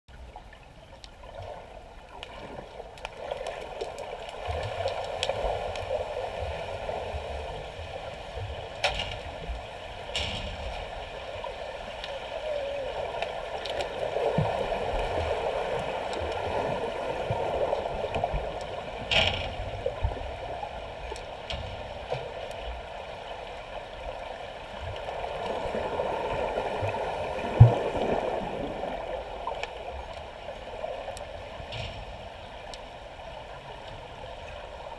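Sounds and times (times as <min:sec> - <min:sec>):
muffled underwater water rushing: 0:00.1 - 0:34.9.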